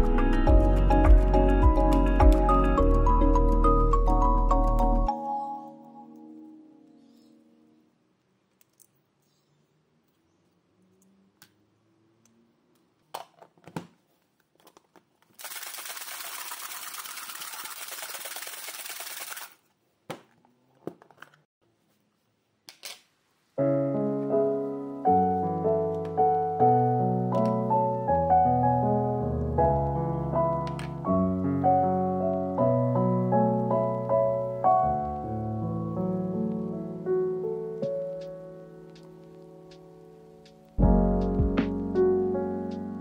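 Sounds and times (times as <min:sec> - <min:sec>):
lo-fi piano music: 0:00.0 - 0:07.8, 0:23.6 - 0:43.0.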